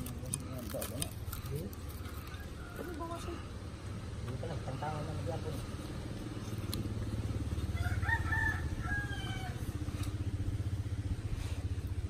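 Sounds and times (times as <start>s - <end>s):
rooster crowing: 2.2s - 3.3s, 7.6s - 9.8s
steady low rumble: 5.2s - 12.0s.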